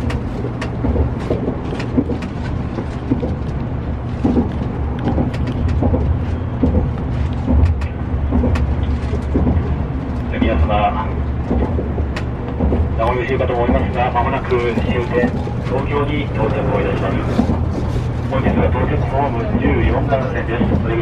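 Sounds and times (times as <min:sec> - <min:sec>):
light clicks and knocks: 0:00.0 - 0:10.7
train cabin rumble: 0:00.0 - 0:21.0.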